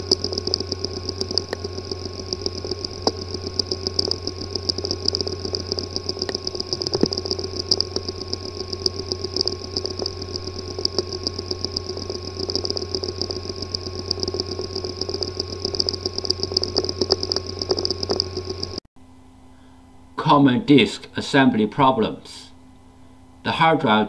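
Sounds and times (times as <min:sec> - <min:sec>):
hard drive clicks: 0:00.0 - 0:18.8
hard drive buzzing and chattering: 0:00.0 - 0:18.9.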